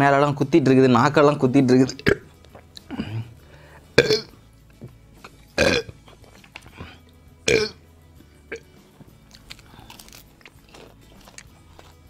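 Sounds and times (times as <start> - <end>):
loud burp: 4.0 - 4.4, 5.6 - 6.0, 7.4 - 7.8, 8.5 - 8.7
man chewing crispy food: 8.6 - 12.0.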